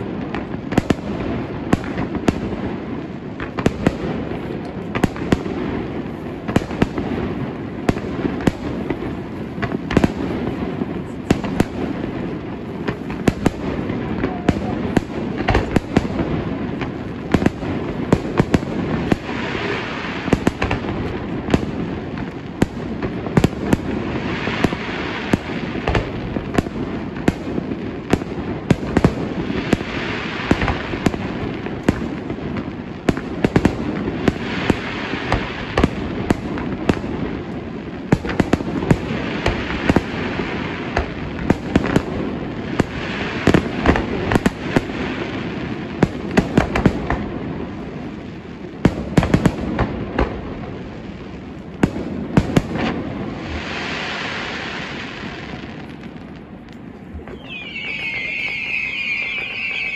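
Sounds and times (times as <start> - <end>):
fireworks bangs: 0.0 - 48.2, 51.8 - 59.9
hissing rush: 57.2 - 59.9.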